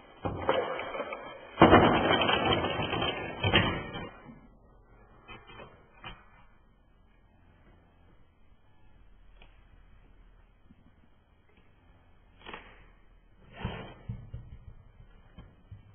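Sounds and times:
objects rattling and rolling: 0.0 - 4.4.

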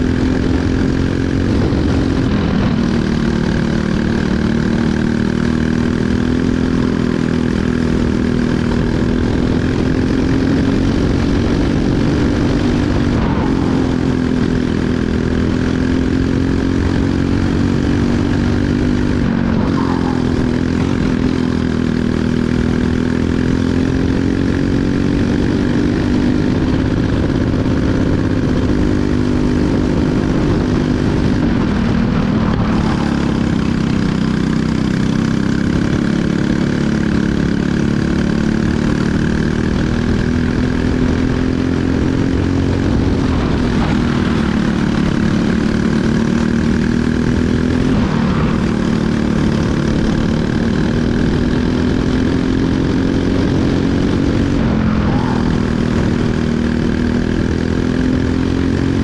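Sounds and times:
kart engine running at speed: 0.0 - 59.0.

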